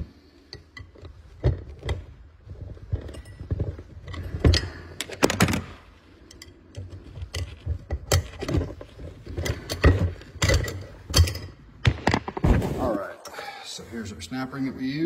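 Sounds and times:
metal parts and tools clanking: 0:00.4 - 0:12.5.

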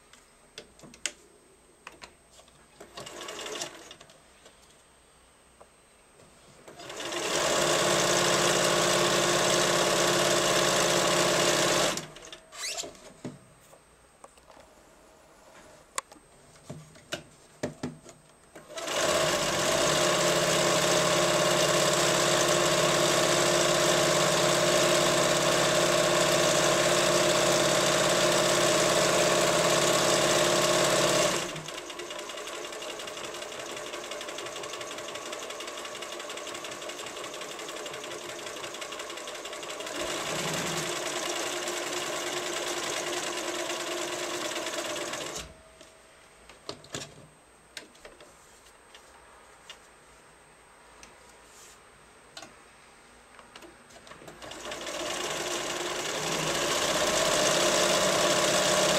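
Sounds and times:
sewing machine stitching: 0:02.8 - 0:04.0, 0:06.7 - 0:12.9, 0:18.6 - 0:45.5, 0:54.3 - 0:58.9.

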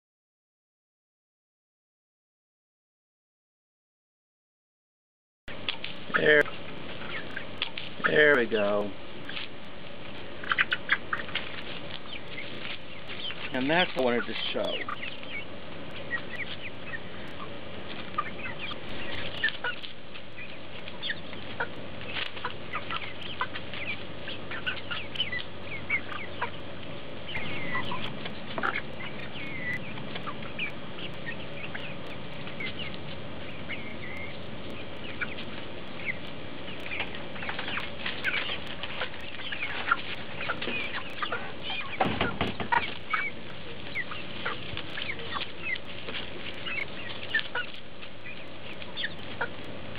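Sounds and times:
hens clucking: 0:05.5 - 0:49.9
sharp little clicks of pecking: 0:27.3 - 0:41.3.

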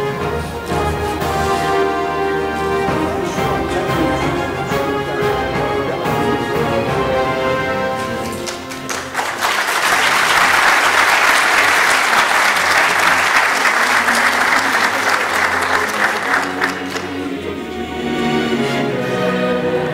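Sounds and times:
background music: 0:00.0 - 0:13.4, 0:14.2 - 0:19.9
audience applauding: 0:08.0 - 0:17.4.

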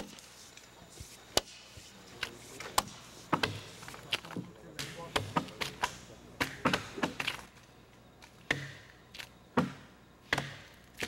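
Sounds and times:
axes chopping wooden log: 0:08.5 - 0:08.8, 0:09.6 - 0:11.0.

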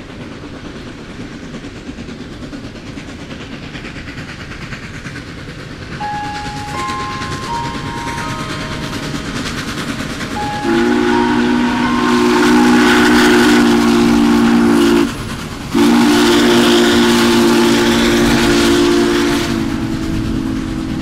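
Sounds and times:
steam locomotive chime whistle: 0:06.0 - 0:20.2.

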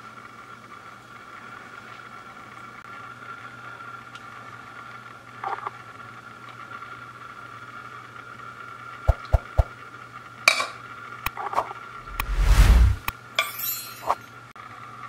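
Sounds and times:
rushing noise with rumble: 0:12.0 - 0:13.1.

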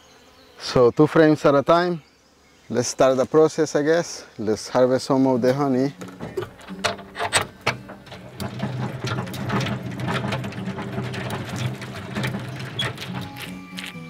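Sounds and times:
hand-cranked extractor gears whirring: 0:06.0 - 0:13.6.

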